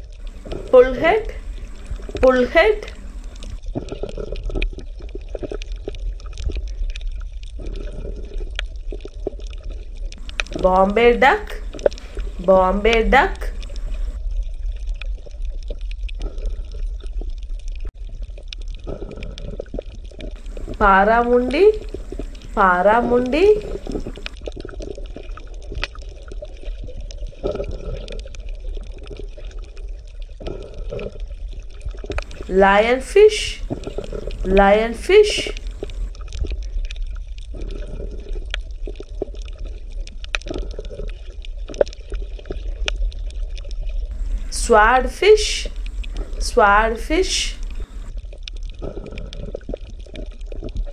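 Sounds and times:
small water drips and splashes: 0:00.0 - 0:02.2, 0:02.8 - 0:10.6, 0:11.6 - 0:12.4, 0:13.4 - 0:20.8, 0:21.7 - 0:22.6, 0:23.6 - 0:32.5, 0:35.5 - 0:44.5, 0:47.6 - 0:50.9
steady low hum: 0:00.0 - 0:03.6, 0:10.2 - 0:14.2, 0:20.4 - 0:24.4, 0:32.1 - 0:36.2, 0:44.1 - 0:48.2
water running and bubbling: 0:00.0 - 0:50.9
small clicks and pops: 0:02.8 - 0:10.6, 0:11.5 - 0:20.8, 0:23.6 - 0:32.5, 0:35.5 - 0:44.5, 0:47.6 - 0:50.9
low rumble: 0:20.3 - 0:24.4, 0:44.0 - 0:48.2.

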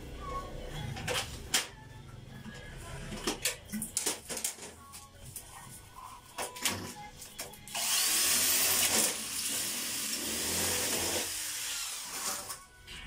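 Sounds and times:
electric power tool running: 0:07.7 - 0:12.4.

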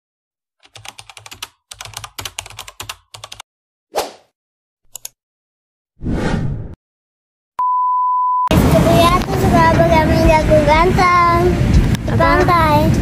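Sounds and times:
keyboard typing clicks: 0:00.7 - 0:03.4
short swish: 0:03.9 - 0:04.3, 0:06.0 - 0:06.8.

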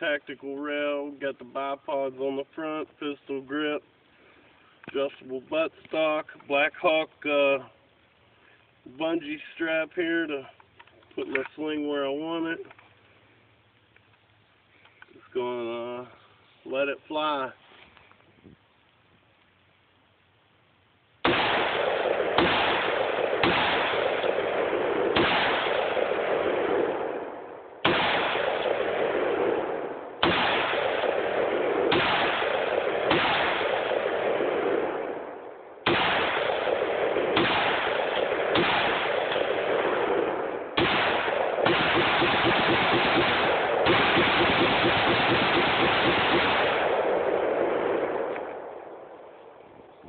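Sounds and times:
rifle shots with rolling echo: 0:21.2 - 0:50.0.

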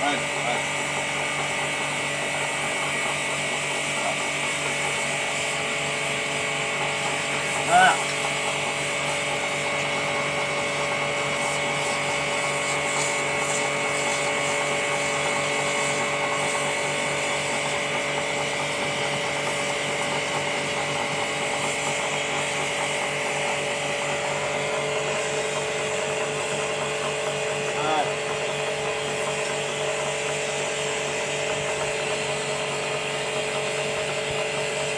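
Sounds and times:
pressure washer motor whine: 0:00.0 - 0:34.9
water jet hissing: 0:00.0 - 0:34.9.

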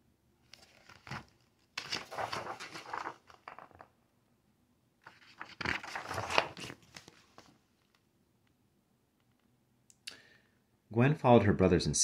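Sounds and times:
book pages rustling: 0:00.5 - 0:03.9, 0:05.0 - 0:08.0.

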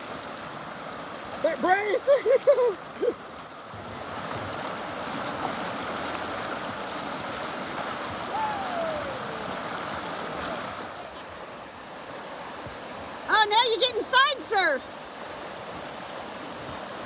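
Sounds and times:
whitewater rushing: 0:00.0 - 0:17.0
faint falling cry: 0:08.3 - 0:10.6.

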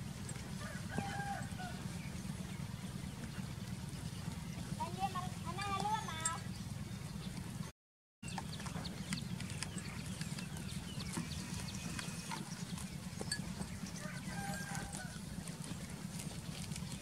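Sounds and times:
goat tearing and chewing grass: 0:00.0 - 0:17.0
animal call: 0:08.3 - 0:17.0.

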